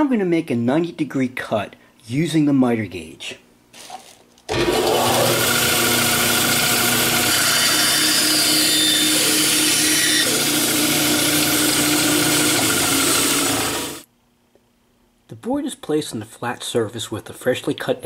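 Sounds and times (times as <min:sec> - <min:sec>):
bandsaw cutting a board: 0:04.5 - 0:14.0.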